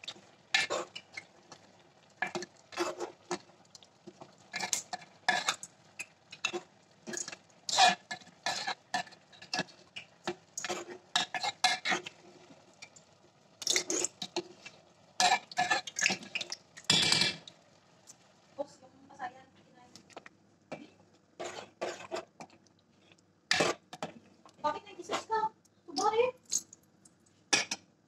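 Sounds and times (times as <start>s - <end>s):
spoon scraping metal pot: 2.2s - 3.2s, 21.4s - 22.4s, 23.5s - 24.0s, 25.0s - 25.4s.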